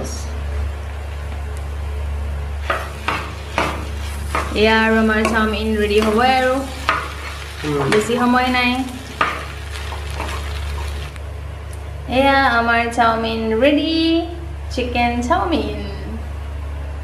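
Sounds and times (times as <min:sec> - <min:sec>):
spatula clanking on pan: 0:02.6 - 0:08.1
noodles sizzling: 0:02.6 - 0:11.3.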